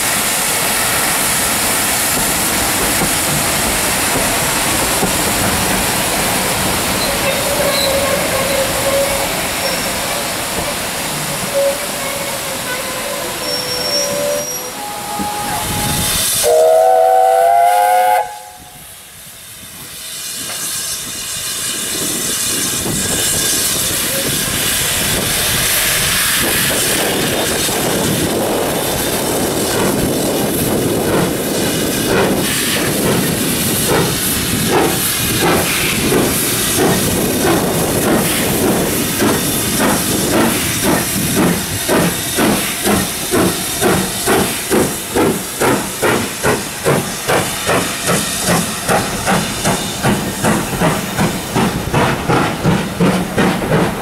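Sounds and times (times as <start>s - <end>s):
hiss of steam: 0.0s - 54.0s
rhythmic locomotive exhaust beats: 0.0s - 54.0s
steam locomotive whistle: 7.0s - 10.3s, 11.4s - 18.9s.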